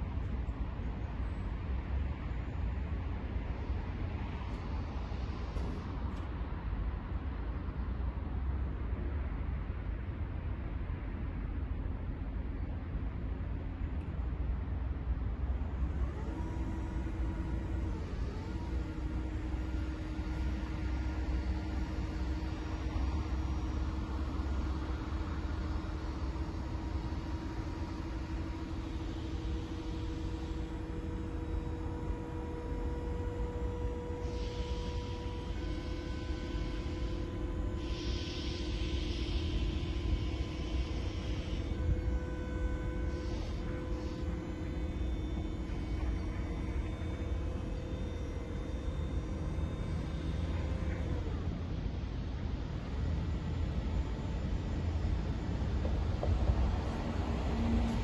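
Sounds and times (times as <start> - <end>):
hydraulic pump motor whining: 15.7 - 58.0.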